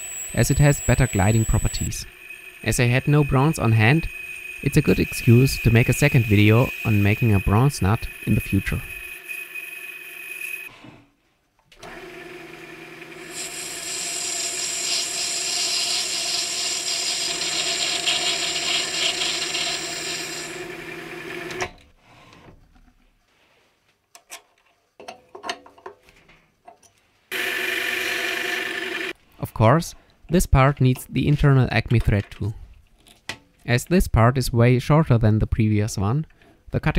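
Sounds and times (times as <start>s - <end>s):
metal cutting hiss: 0.0s - 9.6s
lathe motor hum: 0.0s - 10.7s, 11.8s - 21.6s, 27.3s - 29.1s.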